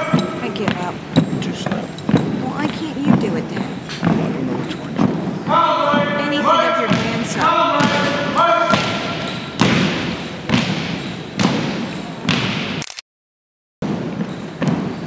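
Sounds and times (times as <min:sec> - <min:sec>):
marching feet on hardwood floor: 0:00.0 - 0:12.8
drill commander's drawn-out call: 0:05.5 - 0:09.4.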